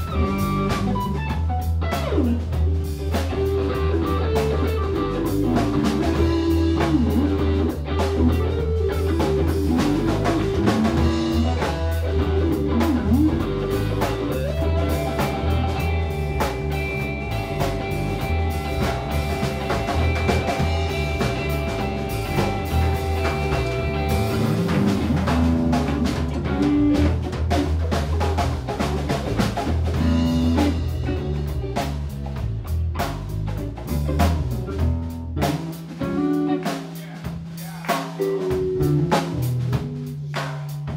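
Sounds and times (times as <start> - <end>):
long held guitar notes: 0.0 - 27.5
live rock band playing: 0.0 - 40.9.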